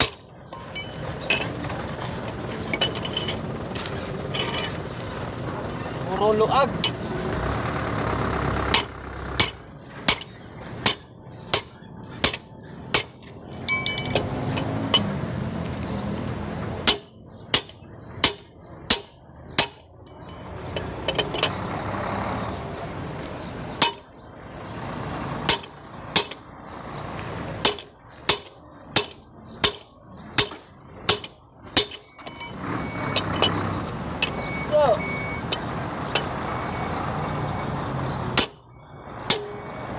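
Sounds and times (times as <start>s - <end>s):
hammer striking metal wrench: 8.7s - 15.1s, 16.8s - 21.6s, 23.8s - 24.0s, 27.6s - 33.6s, 35.5s - 36.3s, 38.4s - 39.7s.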